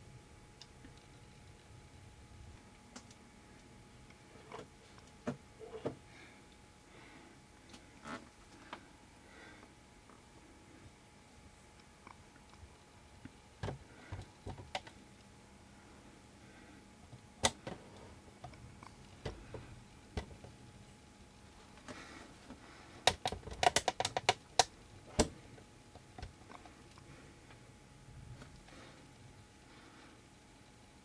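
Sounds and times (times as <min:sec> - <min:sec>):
sharp clicks and taps: 0:23.0 - 0:25.3.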